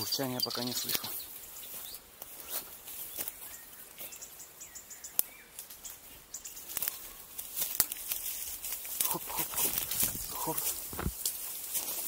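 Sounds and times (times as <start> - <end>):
footsteps in dry undergrowth: 0.0 - 12.0
twigs cracking: 0.7 - 4.1, 5.0 - 12.0.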